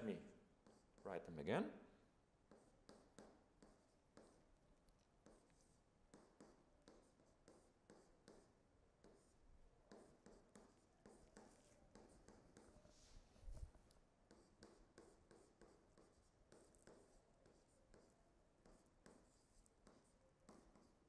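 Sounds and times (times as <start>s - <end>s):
stylus tapping and scratching: 13.5s - 21.0s.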